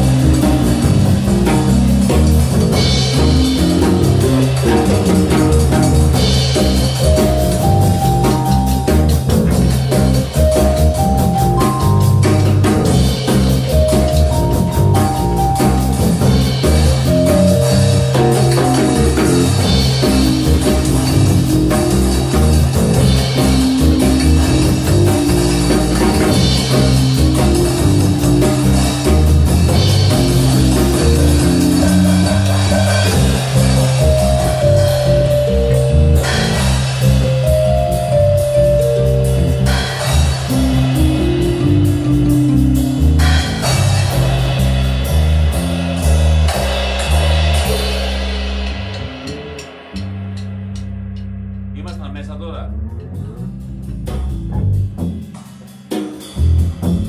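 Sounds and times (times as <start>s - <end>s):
rock band jamming: 0.0s - 57.0s.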